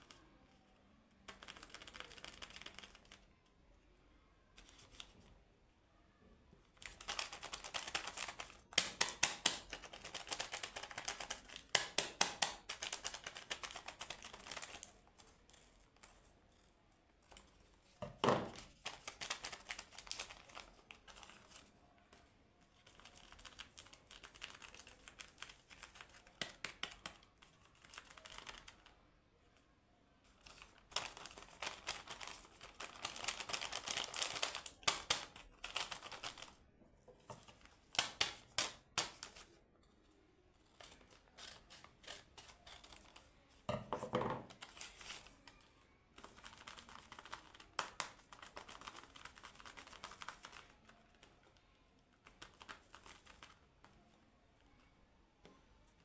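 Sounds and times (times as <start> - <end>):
paper and plastic sheet crinkling: 18.4 - 21.7, 30.3 - 36.6.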